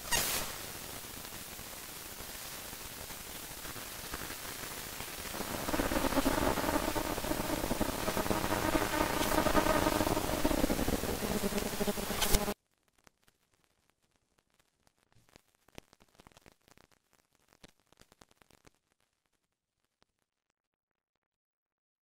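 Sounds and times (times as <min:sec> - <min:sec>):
static hiss: 0:00.0 - 0:12.6
droning ambient chord: 0:05.4 - 0:12.6.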